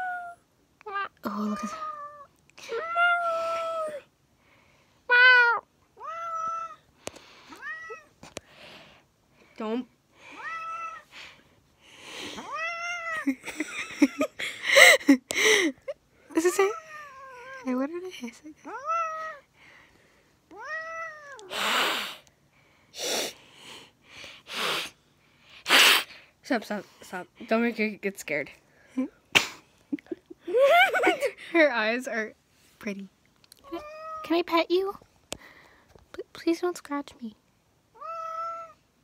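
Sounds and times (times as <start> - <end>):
cat meowing: 5.1 - 6.8, 10.4 - 11.0, 20.5 - 21.6, 33.6 - 34.3, 38.0 - 38.8
cat hissing: 20.6 - 22.3, 23.0 - 23.4, 24.4 - 25.0, 25.6 - 26.2.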